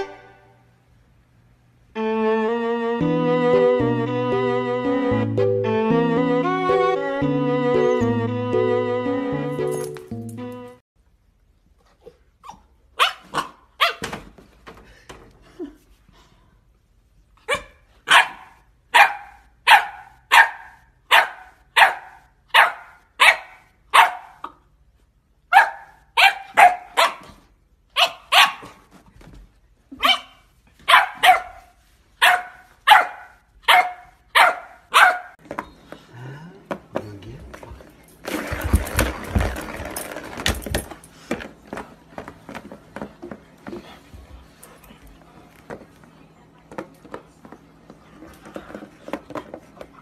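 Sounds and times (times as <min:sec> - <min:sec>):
puppy yapping: 0:25.5 - 0:27.3, 0:30.0 - 0:35.4.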